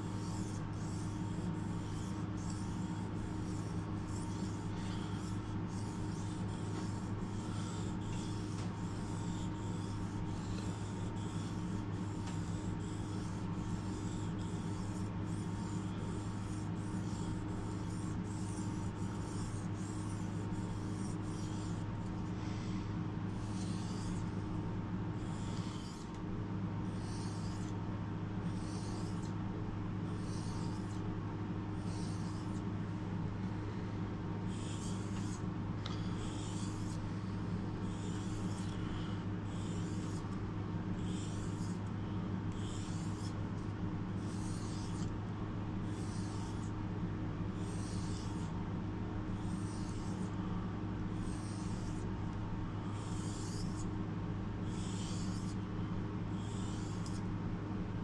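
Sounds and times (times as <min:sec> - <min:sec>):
steady low hum: 0:00.0 - 0:58.0
knife scraping on whetstone: 0:00.2 - 0:21.9, 0:25.2 - 0:26.1, 0:44.3 - 0:45.1.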